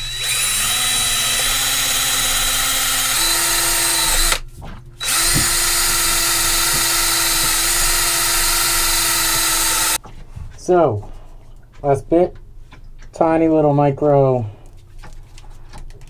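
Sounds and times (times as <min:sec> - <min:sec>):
drill with wire brush on metal: 0:00.0 - 0:04.4, 0:05.0 - 0:10.0.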